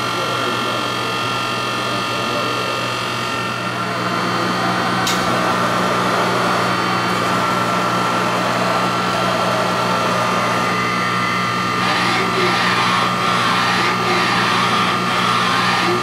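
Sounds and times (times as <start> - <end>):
workshop machinery humming: 0.0 - 16.0
short click: 5.0 - 5.3.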